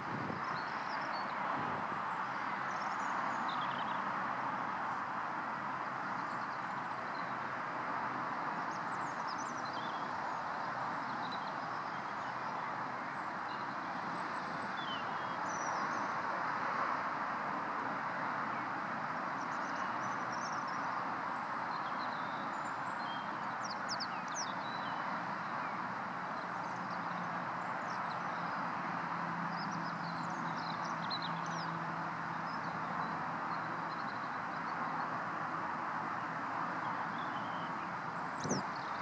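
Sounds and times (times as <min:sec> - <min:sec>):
small birds chirping: 0:19.4 - 0:35.2, 0:36.2 - 0:39.0.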